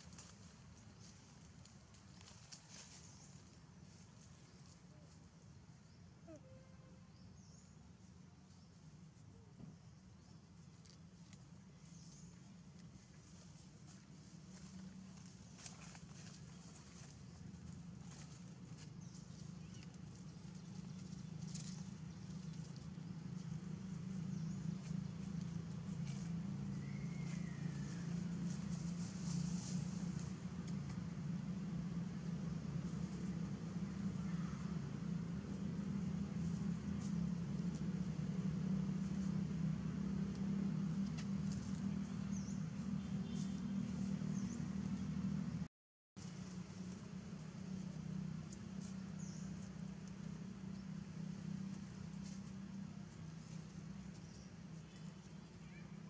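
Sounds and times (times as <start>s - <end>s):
rustling of dry leaves: 0.0s - 45.5s, 46.2s - 56.0s
steady low hum: 0.0s - 55.8s.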